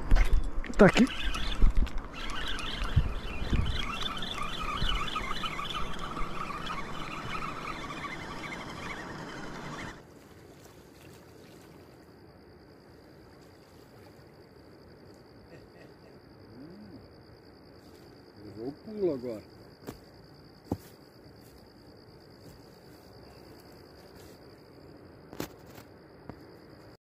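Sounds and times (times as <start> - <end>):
water splashing and trickling: 10.0 - 12.2.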